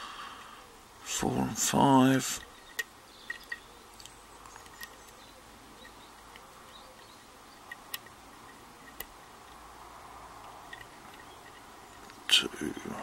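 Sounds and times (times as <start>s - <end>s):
lock pick metallic ticks: 2.0s - 9.7s, 10.3s - 12.3s.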